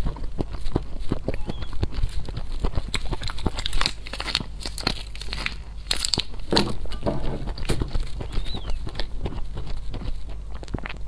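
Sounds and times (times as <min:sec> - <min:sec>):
chewing and swallowing: 0:00.0 - 0:11.0
plastic sachet crinkling: 0:02.9 - 0:07.0.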